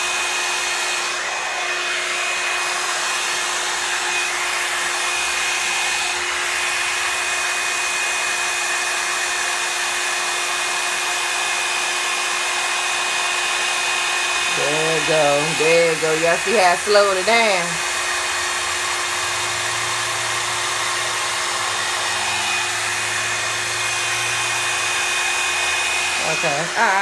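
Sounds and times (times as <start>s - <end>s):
hair dryer running: 0.0s - 27.0s.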